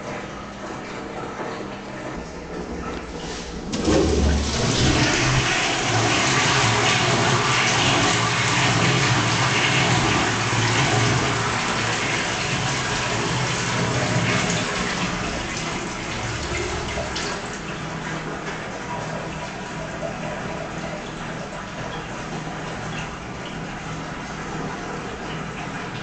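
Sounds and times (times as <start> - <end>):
water rushing into toilet bowl: 1.6 - 26.0
toilet flush thump: 2.0 - 17.7.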